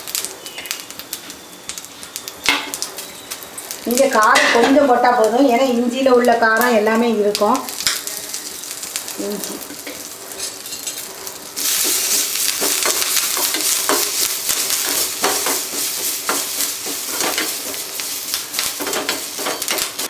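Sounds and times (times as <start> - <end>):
spices sizzling in hot oil: 0.0 - 20.0
spatula scraping pan: 9.8 - 20.0.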